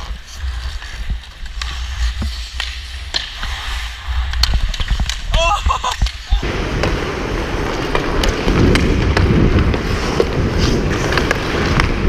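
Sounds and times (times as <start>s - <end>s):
skates scraping on ice: 0.0s - 12.0s
steady rush of noise: 0.0s - 12.0s
hockey stick clicking on puck: 1.4s - 6.2s, 7.8s - 8.9s.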